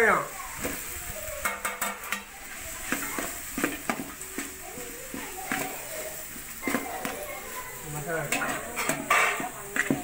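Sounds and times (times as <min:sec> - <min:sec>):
ladle scraping metal pot: 0:08.2 - 0:10.0.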